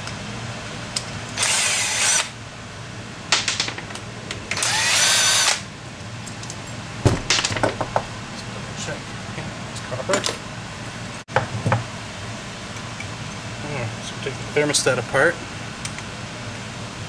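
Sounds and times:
cordless drill motor whine: 1.4 - 2.3, 4.6 - 5.6.

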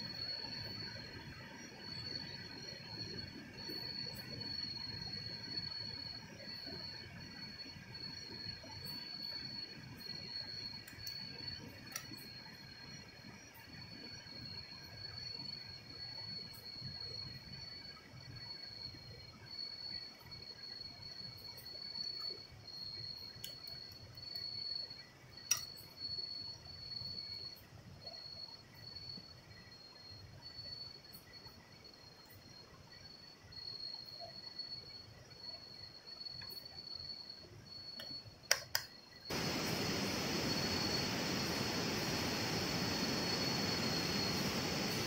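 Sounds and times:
night insects trilling: 0.0 - 45.0
loud rushing noise: 39.3 - 45.0.

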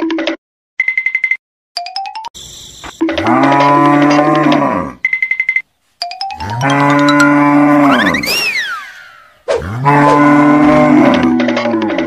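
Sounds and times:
cow mooing: 3.2 - 5.0, 6.4 - 8.2, 9.6 - 12.0
rising and falling whistle: 7.8 - 9.7.

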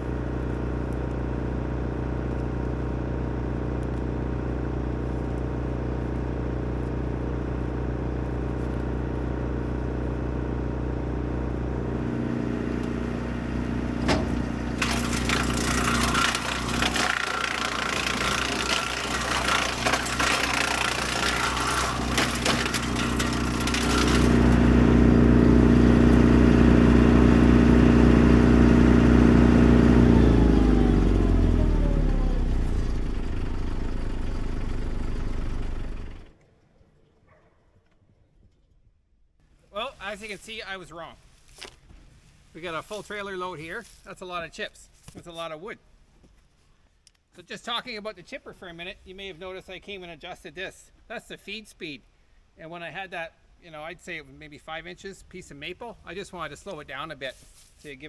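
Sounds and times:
branches grinding in chipper: 0.0 - 36.3
wood chipper engine drone: 0.0 - 36.4.

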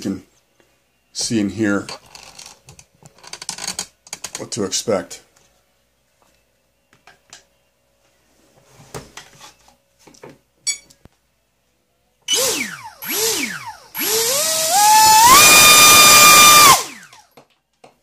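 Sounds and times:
electric motor whine: 12.3 - 17.2.

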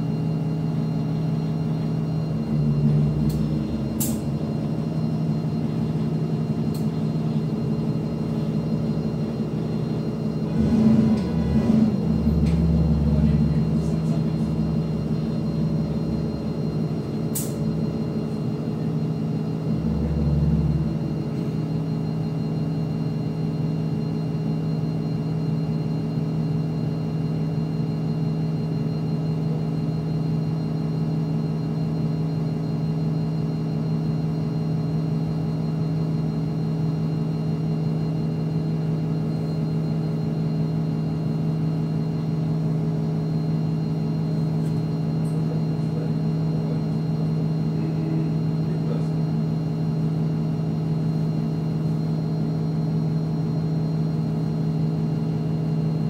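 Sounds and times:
bus engine idling: 0.0 - 24.0, 40.0 - 49.4
deep engine rumble: 0.7 - 22.9.

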